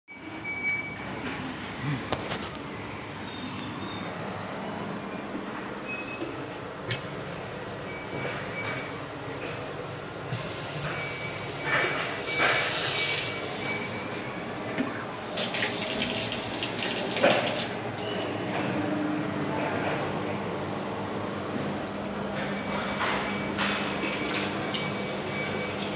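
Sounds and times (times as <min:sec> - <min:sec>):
tap water splashing into sink: 0:15.4 - 0:17.9.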